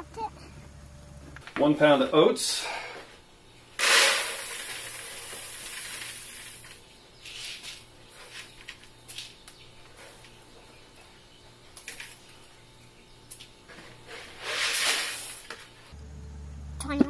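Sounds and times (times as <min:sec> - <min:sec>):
grain pouring into bucket: 0:03.8 - 0:06.8, 0:14.4 - 0:15.5.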